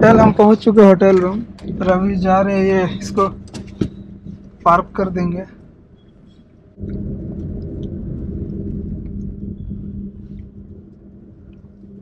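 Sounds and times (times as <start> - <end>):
engine hum: 0.0 - 12.0
low rumble inside car cabin: 0.0 - 12.0.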